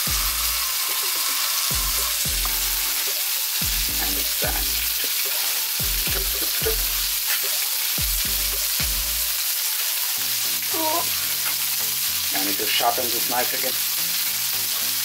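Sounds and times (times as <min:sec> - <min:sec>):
sliding deep bass notes: 0:00.0 - 0:00.6, 0:01.7 - 0:02.9, 0:03.6 - 0:05.0, 0:05.8 - 0:07.2, 0:08.1 - 0:09.4
crackling hiss: 0:00.0 - 0:15.0.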